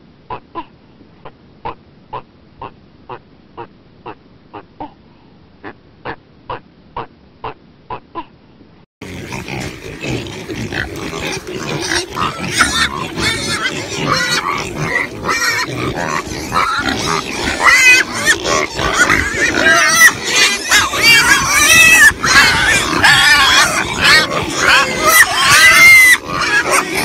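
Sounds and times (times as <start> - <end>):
pigs grunting and squealing: 9.0 - 27.0.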